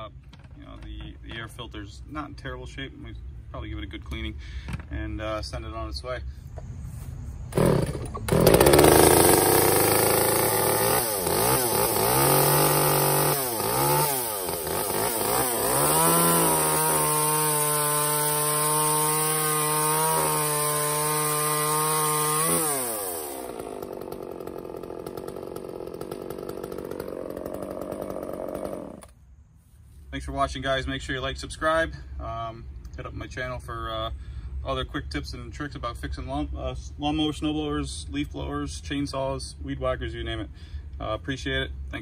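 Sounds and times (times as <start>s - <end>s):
chainsaw revving: 7.5s - 29.2s
chainsaw cutting through log: 7.6s - 29.2s.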